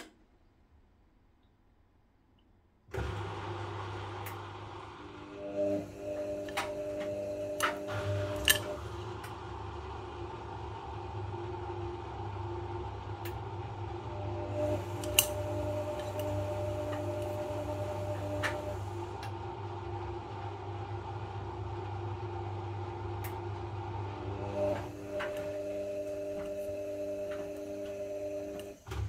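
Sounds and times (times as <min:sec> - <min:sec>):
washing machine motor hum: 0:02.9 - 0:29.0.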